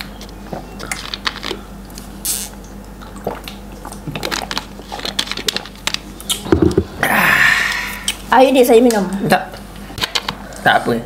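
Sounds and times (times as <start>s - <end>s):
sipping and swallowing: 0.2s - 1.7s, 2.3s - 8.2s
mouth clicks and lip smacks: 6.2s - 6.6s.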